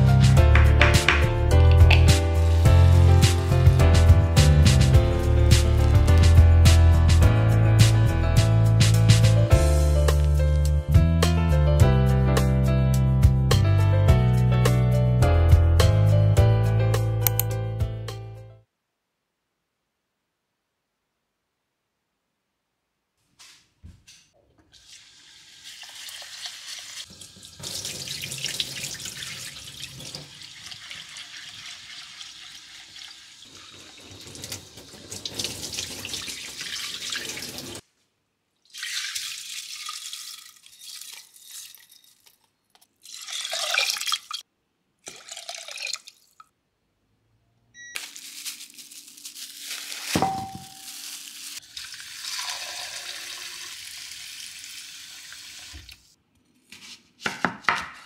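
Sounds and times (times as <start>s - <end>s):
tap water running into sink: 0.5s - 3.8s, 24.7s - 37.8s, 51.6s - 56.0s
water splashing in glass bowl: 38.7s - 42.4s, 43.0s - 44.4s, 45.0s - 46.5s
handling noises: 48.0s - 51.0s.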